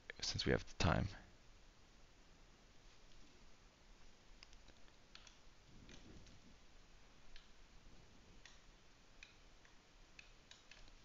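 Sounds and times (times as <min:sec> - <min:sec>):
computer mouse and keyboard clicks: 0:04.4 - 0:06.5, 0:08.4 - 0:11.0.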